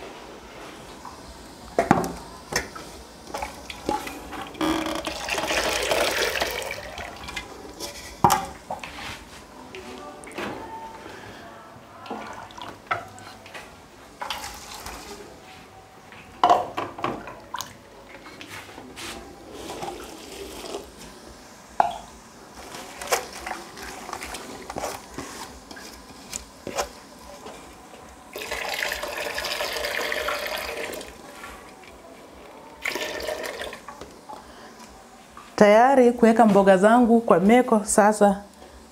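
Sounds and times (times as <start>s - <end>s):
water pouring: 2.8s - 8.0s, 28.3s - 31.2s, 32.8s - 33.9s.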